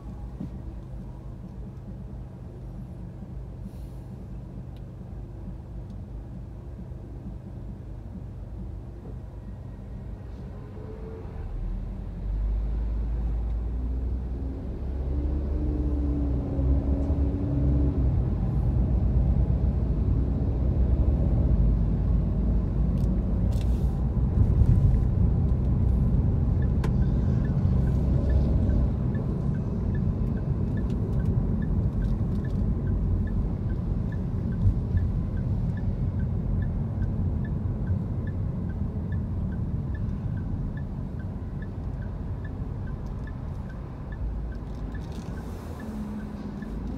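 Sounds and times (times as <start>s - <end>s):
car engine and tyre rumble: 0.0s - 46.9s
faint regular ticking: 26.5s - 46.9s.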